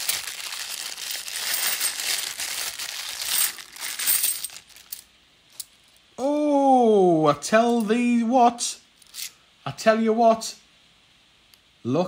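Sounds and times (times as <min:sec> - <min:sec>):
plastic bag crinkling: 0:00.0 - 0:05.0
coins clinking: 0:00.0 - 0:05.7.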